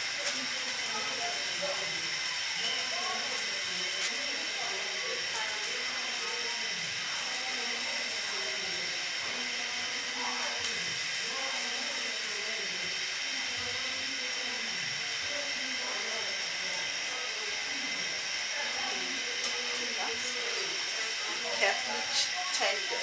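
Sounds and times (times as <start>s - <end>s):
sandwich sizzling in frying pan: 0.0s - 23.0s.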